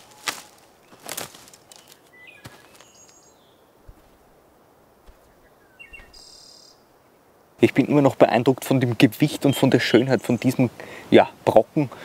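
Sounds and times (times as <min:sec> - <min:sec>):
faint bird chirps: 0:00.0 - 0:04.0, 0:05.1 - 0:07.0
footsteps crunching on twigs: 0:00.0 - 0:04.4, 0:05.0 - 0:06.3.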